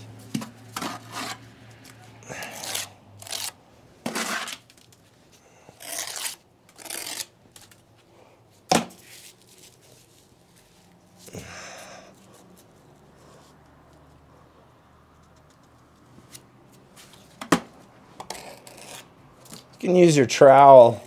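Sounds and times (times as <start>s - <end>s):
trowel scraping mortar: 0.7s - 1.4s, 2.3s - 4.7s, 5.8s - 7.3s, 18.2s - 19.6s
brick scraping into place: 2.6s - 4.7s.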